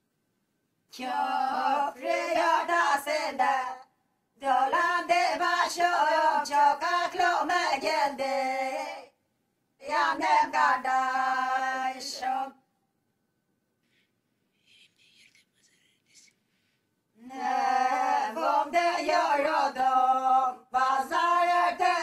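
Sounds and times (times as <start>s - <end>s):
unaccompanied folk singing: 0.9s - 9.2s, 9.8s - 12.6s, 17.2s - 22.0s.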